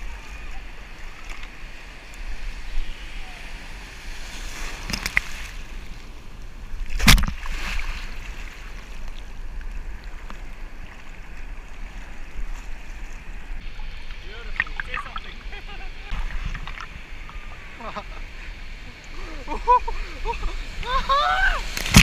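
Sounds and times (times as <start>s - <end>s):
sea surf washing: 0.0s - 22.0s
sharp water splash: 6.8s - 8.6s, 13.6s - 17.2s, 21.4s - 22.0s.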